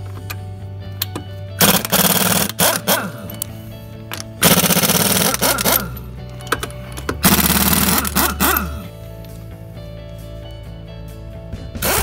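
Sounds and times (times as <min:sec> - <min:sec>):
background music: 0:00.0 - 0:12.0
air impact wrench hammering: 0:01.6 - 0:03.5, 0:04.1 - 0:08.9, 0:11.8 - 0:12.0.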